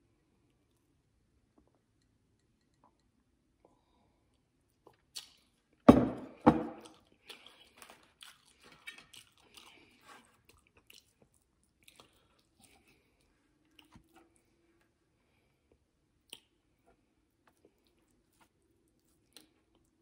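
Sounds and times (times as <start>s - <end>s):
chewing noises: 6.8s - 14.5s.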